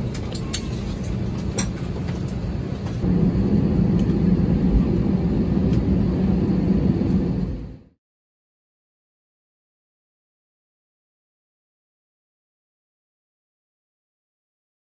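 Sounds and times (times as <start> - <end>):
aircraft cabin rumble: 0.0 - 8.0.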